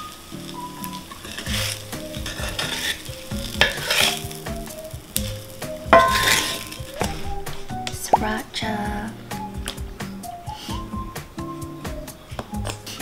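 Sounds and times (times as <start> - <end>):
food sizzling in a skillet: 0.0 - 11.3
wooden spatula scraping a pan: 0.4 - 8.9.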